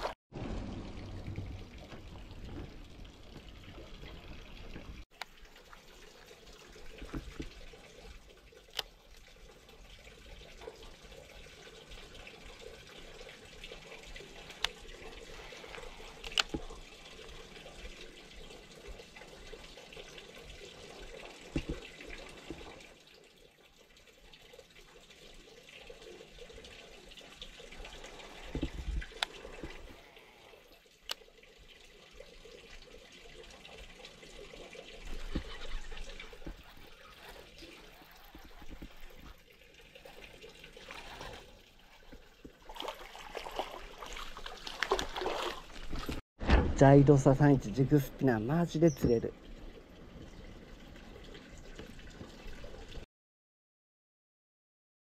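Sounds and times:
water trickling in canal: 0:00.0 - 0:46.2, 0:46.8 - 0:53.1.

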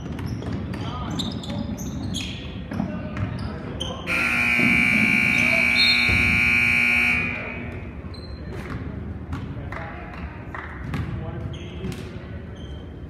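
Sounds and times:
scoreboard buzzer: 0:04.1 - 0:07.8.

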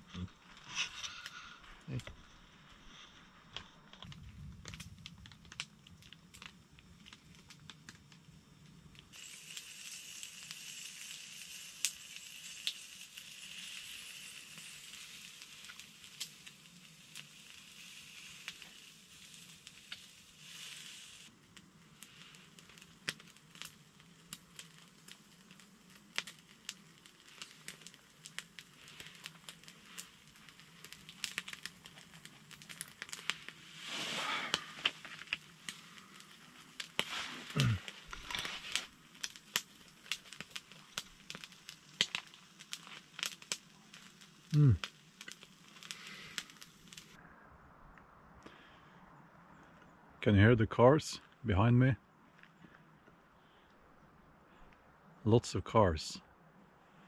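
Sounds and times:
fat crackling and popping: 0:00.0 - 0:47.2, 0:49.7 - 0:53.8
bacon sizzling in a pan: 0:04.6 - 0:47.2.

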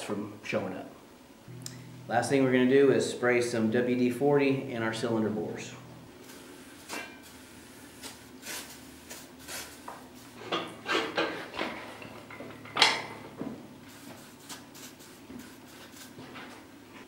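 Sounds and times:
metal clunks and rattles: 0:10.4 - 0:13.6.

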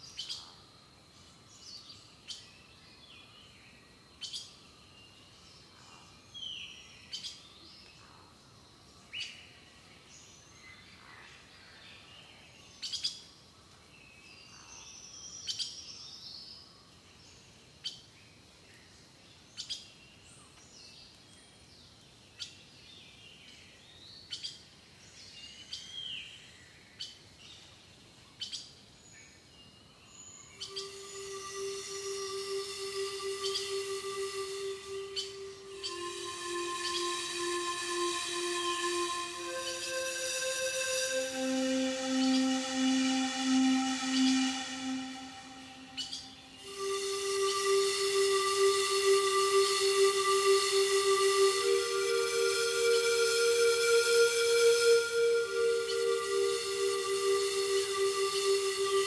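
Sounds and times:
sliding whistled notes: 0:30.6 - 0:59.0.

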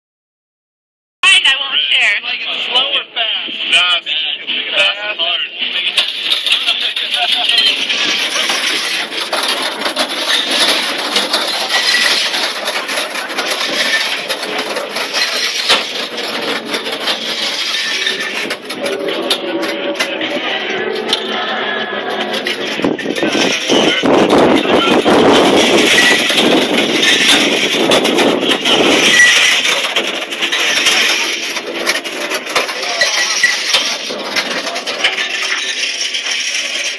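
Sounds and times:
clicks and rattles: 0:06.0 - 0:20.4, 0:22.1 - 0:36.9
metal cage scraping concrete: 0:06.0 - 0:36.9.

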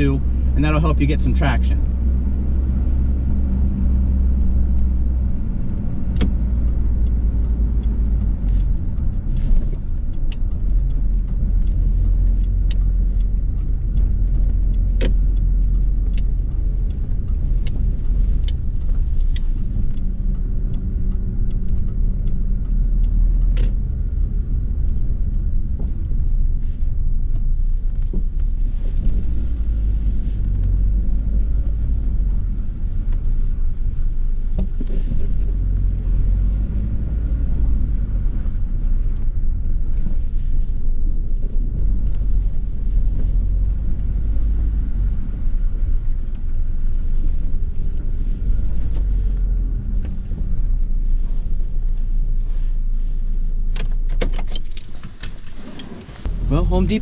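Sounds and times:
engine and road rumble: 0:00.0 - 0:57.0
sharp ticks: 0:03.7 - 0:26.1.

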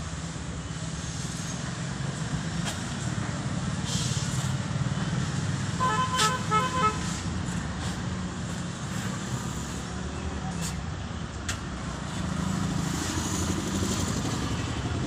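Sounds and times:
road traffic rumble: 0:00.0 - 0:15.0
vehicle horn short toots: 0:05.8 - 0:07.0.

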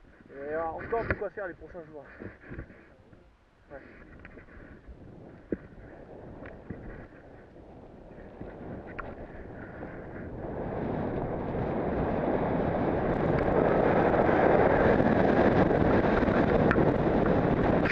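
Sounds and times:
snowboard scraping over snow: 0:03.8 - 0:17.9
wind buffeting microphone: 0:04.0 - 0:17.9.

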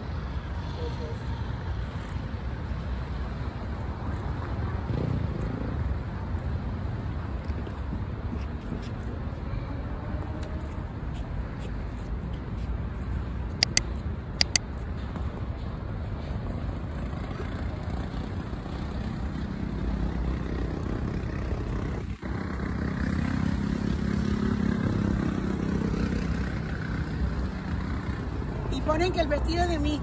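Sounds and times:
city road traffic: 0:00.0 - 0:30.0
sharp clicks: 0:13.6 - 0:14.6.

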